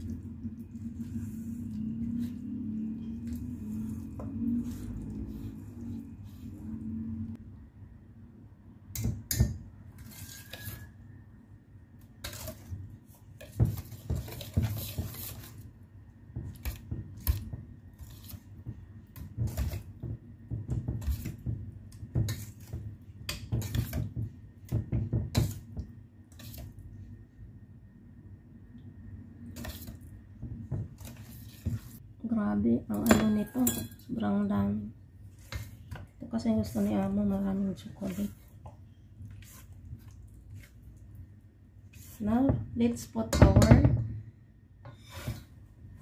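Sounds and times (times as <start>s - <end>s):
whisk scraping metal bowl: 0.4s - 7.3s, 10.0s - 11.0s, 12.2s - 12.8s, 13.4s - 15.7s, 16.5s - 20.0s, 20.7s - 24.2s, 25.3s - 26.8s, 29.6s - 30.0s, 31.0s - 32.0s, 35.3s - 40.8s, 41.8s - 42.6s.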